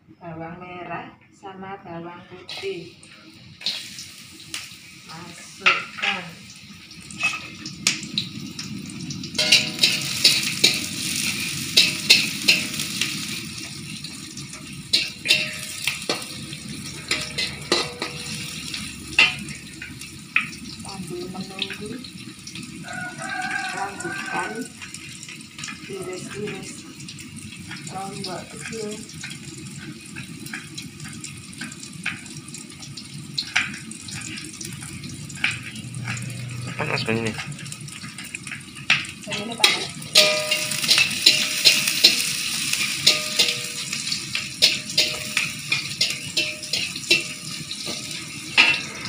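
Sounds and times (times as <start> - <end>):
shallots sizzling in hot oil: 2.3 - 49.0
metal spatula scraping wok: 3.6 - 4.3, 7.1 - 7.7, 9.4 - 20.5, 33.4 - 36.8, 37.4 - 49.0.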